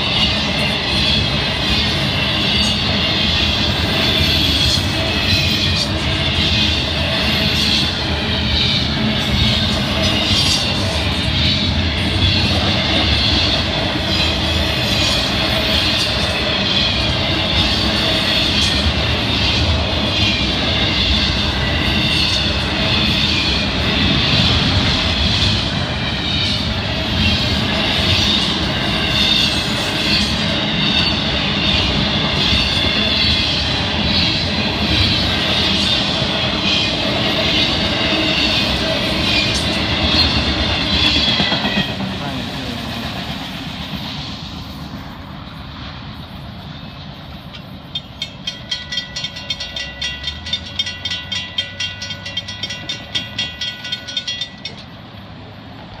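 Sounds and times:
freight train wheels on track: 0.0 - 56.0
crossing bell ringing: 47.5 - 55.2.

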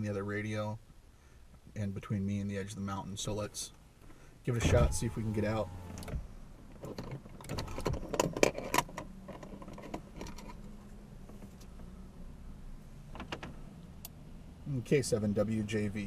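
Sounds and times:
steady low hum: 0.0 - 8.1.

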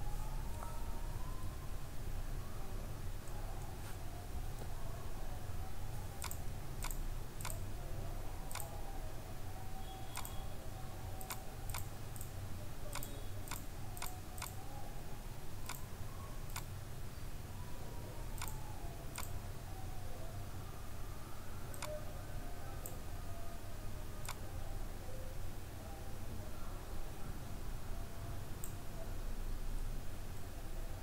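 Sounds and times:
computer mouse clicking: 6.2 - 7.6, 8.5 - 8.8, 10.1 - 10.4, 11.2 - 12.3, 12.9 - 14.6, 15.6 - 15.9, 18.4 - 19.4, 21.7 - 22.0.

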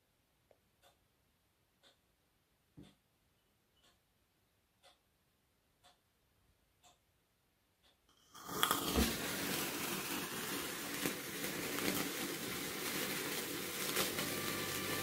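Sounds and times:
sparkler fizzing and crackling: 8.3 - 15.0.

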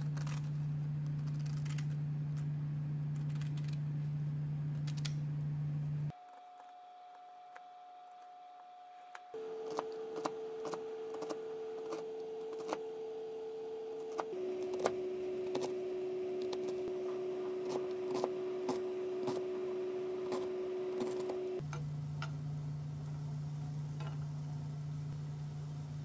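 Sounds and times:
steady held tone: 9.4 - 21.6.

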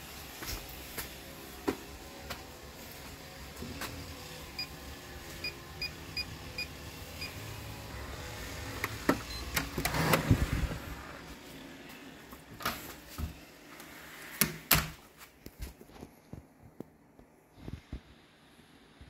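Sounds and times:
keypad beeps: 9.3 - 9.6.

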